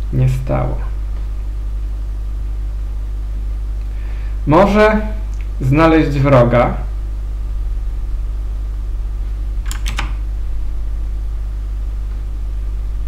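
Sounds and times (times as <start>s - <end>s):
low electrical hum: 0.0s - 13.0s
sharp clicks: 9.6s - 10.2s.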